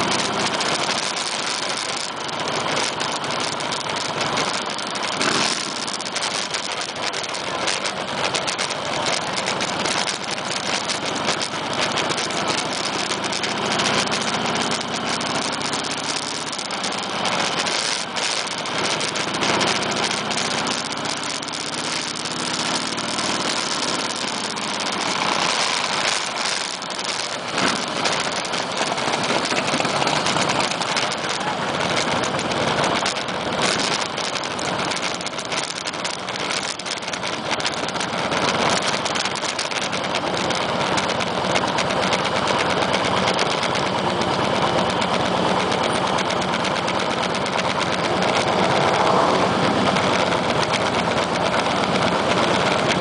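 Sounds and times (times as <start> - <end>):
motorcycle engines idling: 0.0 - 53.0.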